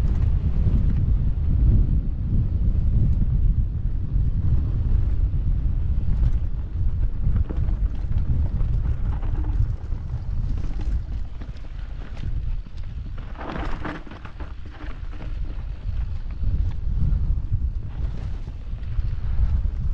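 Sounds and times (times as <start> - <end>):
wind buffeting microphone: 0.0 - 19.9
bike clicks and rattles: 5.9 - 16.8.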